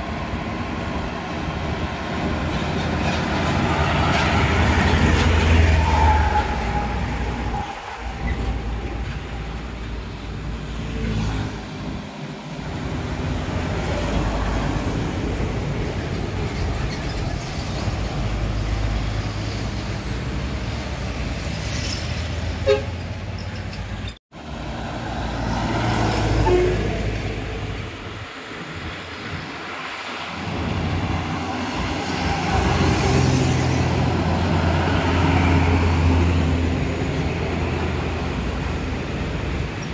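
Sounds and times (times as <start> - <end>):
heavy trucks rumbling past: 0.0 - 39.9
truck horn toot: 22.6 - 23.0, 26.4 - 27.0.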